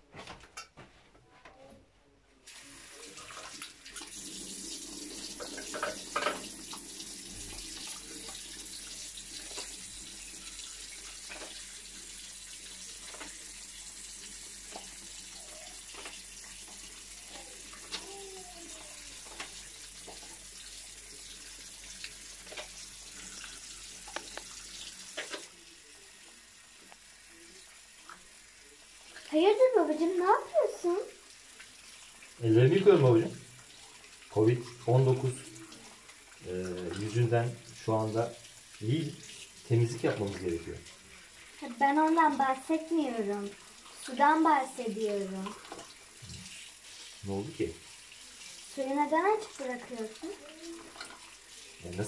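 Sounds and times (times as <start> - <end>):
tap running into basin: 3.2 - 25.5.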